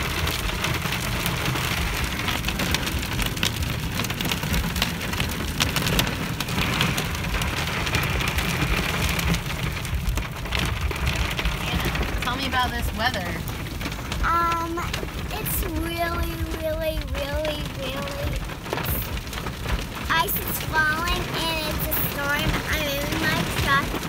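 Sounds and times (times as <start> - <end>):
ice ticking on windshield: 0.0 - 24.0
low rumble: 0.0 - 24.0.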